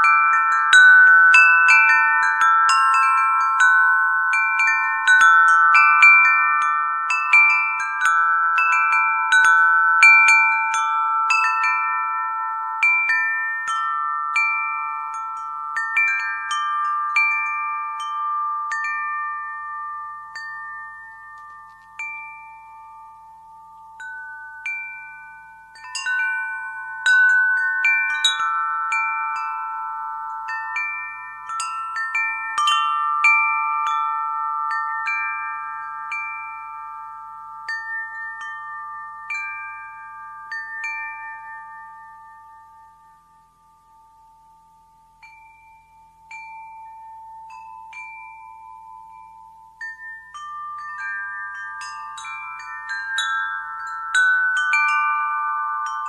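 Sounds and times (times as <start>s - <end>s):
wind chime ringing: 0.0s - 56.0s.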